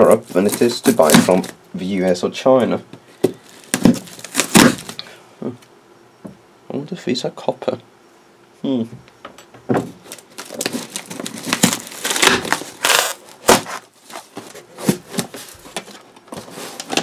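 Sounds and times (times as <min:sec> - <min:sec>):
cardboard box tearing open: 0:00.1 - 0:01.6, 0:03.5 - 0:05.0, 0:10.0 - 0:15.6
cardboard flap snapping: 0:00.3 - 0:01.5, 0:03.2 - 0:05.0, 0:10.0 - 0:17.0.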